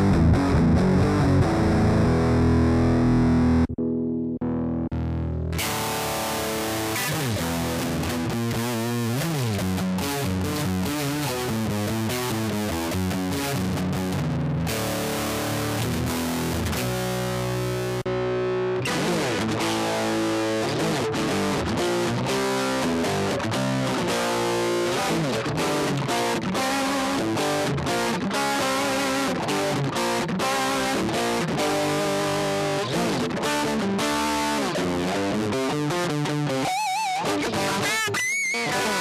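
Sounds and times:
distorted electric guitar: 0.0 - 39.0.

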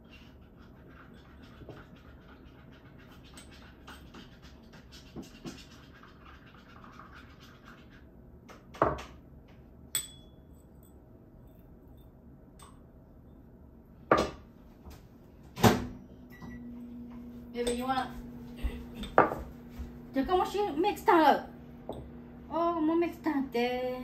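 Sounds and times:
sharp clink with ringing: 9.9 - 11.0.

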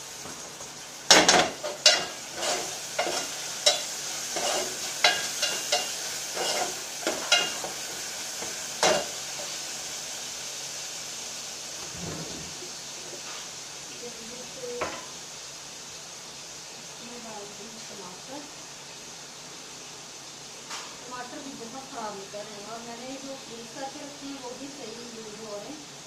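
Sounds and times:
onions sizzling: 0.0 - 26.0
ladle scraping metal pot: 1.3 - 3.8.

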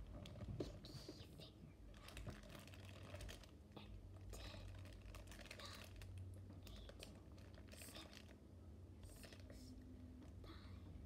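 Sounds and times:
rapid clicks and crinkling: 0.0 - 0.9, 1.9 - 8.4
soft whispers: 0.4 - 8.4, 9.0 - 11.0.

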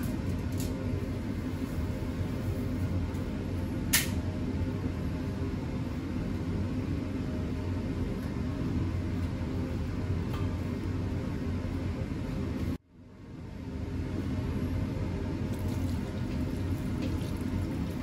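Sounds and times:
sharp click: 3.9 - 4.2.

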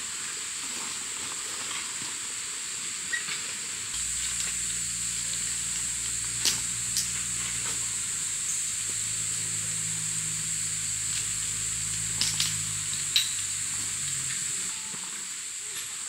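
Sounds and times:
low steady hum: 4.0 - 15.2
high-pitched insect drone: 4.0 - 15.4.

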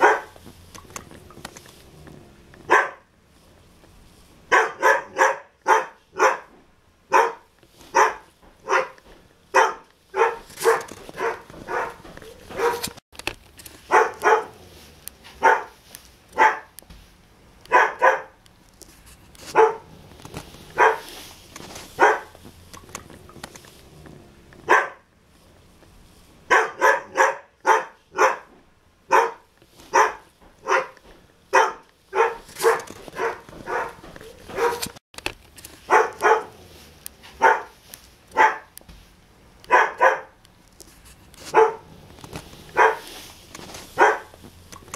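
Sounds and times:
dog barking: 0.0 - 0.4, 2.7 - 3.1, 4.5 - 13.0, 13.9 - 14.6, 15.3 - 15.8, 16.4 - 16.8, 17.7 - 18.4, 19.5 - 19.9, 20.8 - 21.1, 22.0 - 22.4, 24.6 - 25.1, 26.5 - 28.5, 29.1 - 34.9, 35.9 - 36.6, 37.3 - 38.7, 39.7 - 40.4, 41.5 - 41.9, 42.7 - 43.1, 44.0 - 44.4.

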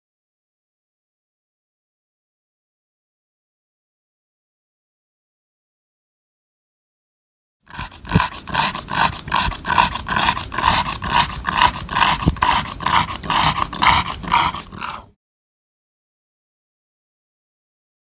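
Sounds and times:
dog panting hard: 7.7 - 15.1.

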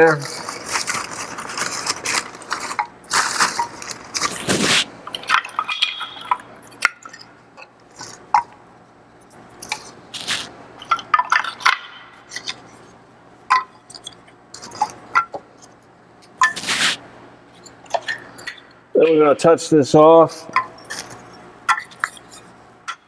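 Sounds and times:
crumpled newspaper rustling: 0.0 - 4.9, 10.2 - 10.5
wooden sticks clacking: 0.5 - 8.6, 13.5 - 15.4.

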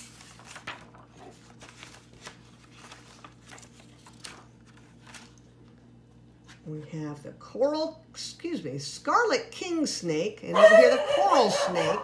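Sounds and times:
book pages rustling: 0.0 - 6.7.

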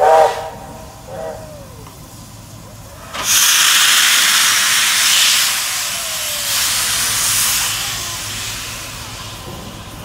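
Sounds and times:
steam locomotive venting steam: 0.0 - 10.0.

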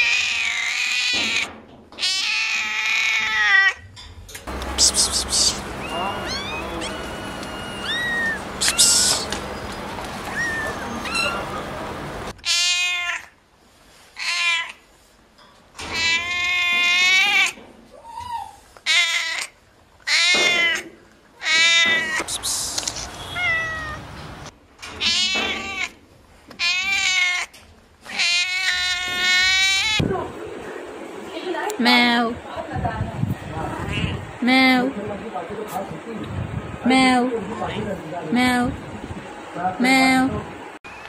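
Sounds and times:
cat meowing loudly: 0.0 - 3.8, 5.4 - 9.3, 10.2 - 11.5, 12.4 - 13.4, 14.2 - 14.8, 15.8 - 22.3, 23.0 - 24.0, 24.9 - 26.0, 26.6 - 30.0
background noise: 0.0 - 41.0.

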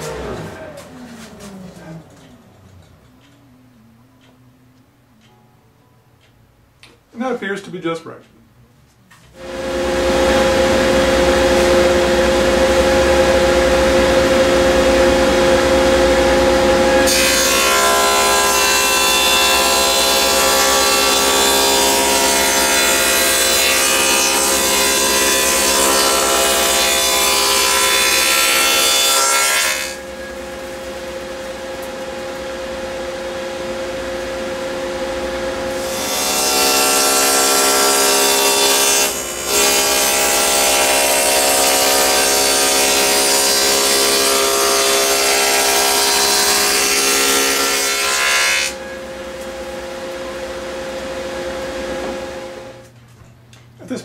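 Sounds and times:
saw cutting plywood: 9.4 - 30.4, 35.6 - 49.0
table saw running: 9.4 - 52.8.

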